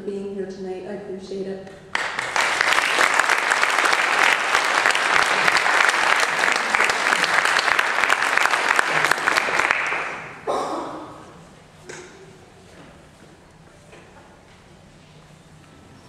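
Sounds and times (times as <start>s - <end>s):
audience applauding: 1.9s - 10.5s.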